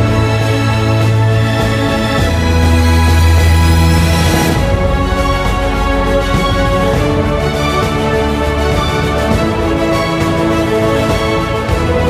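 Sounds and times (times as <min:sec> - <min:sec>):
background music with held chords: 0:00.0 - 0:12.0
sustained bass note: 0:02.4 - 0:09.3.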